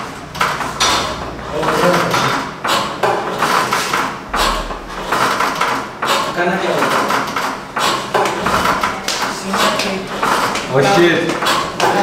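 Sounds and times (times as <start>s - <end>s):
people talking: 8.8s - 12.0s.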